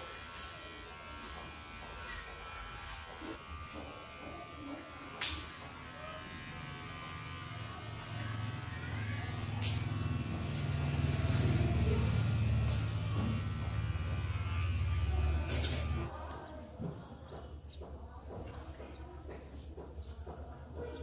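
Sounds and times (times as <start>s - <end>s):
low motor hum: 5.7s - 16.1s.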